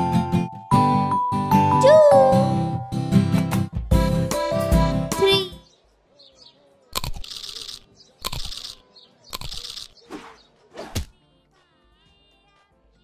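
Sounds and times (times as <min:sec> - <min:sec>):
music: 0:00.0 - 0:05.8, 0:10.5 - 0:13.0.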